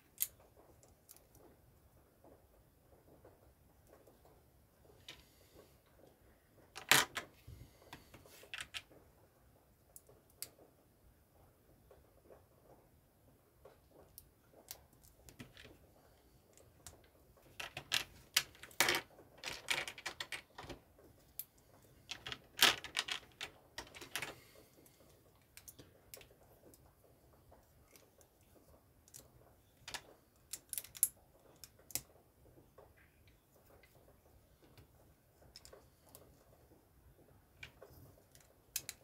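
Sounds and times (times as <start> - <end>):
plastic bricks clicking together: 17.5 - 20.8, 22.1 - 24.4, 29.1 - 32.1, 37.6 - 39.0.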